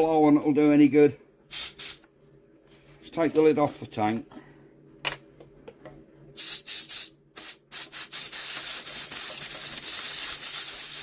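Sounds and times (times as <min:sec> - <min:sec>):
compressed air hissing: 0:01.5 - 0:02.0, 0:06.4 - 0:11.0.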